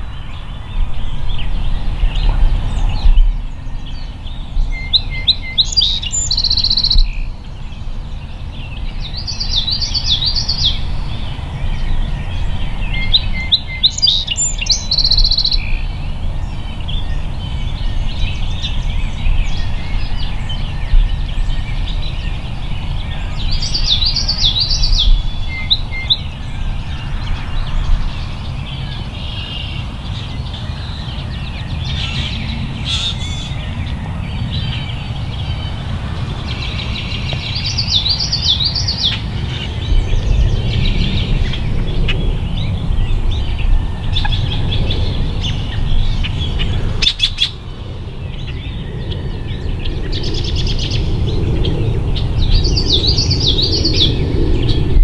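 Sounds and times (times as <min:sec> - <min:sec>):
songbird singing: 0:00.0 - 0:55.0
steady low rumble: 0:00.0 - 0:55.0.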